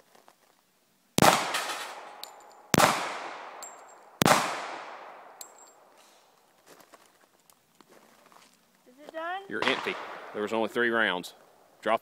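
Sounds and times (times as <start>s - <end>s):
pistol shots with echo: 1.2s - 5.9s, 9.6s - 10.6s.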